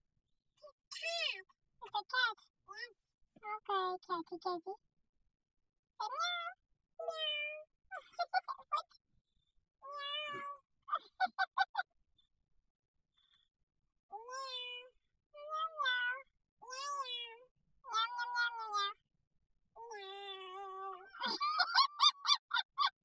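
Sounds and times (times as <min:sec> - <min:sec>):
child imitating cat meows: 0:00.6 - 0:01.4, 0:06.0 - 0:07.7, 0:09.8 - 0:10.6, 0:14.1 - 0:19.0, 0:19.8 - 0:22.1.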